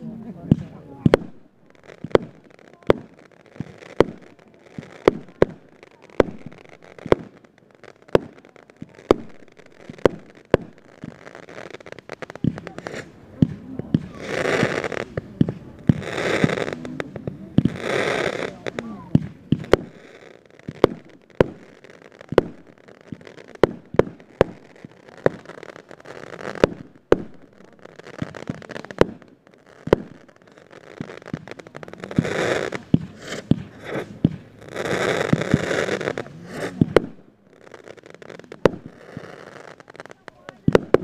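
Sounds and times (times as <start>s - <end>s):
fireworks bangs: 0.0s - 41.0s
fireworks crackling: 0.0s - 41.0s.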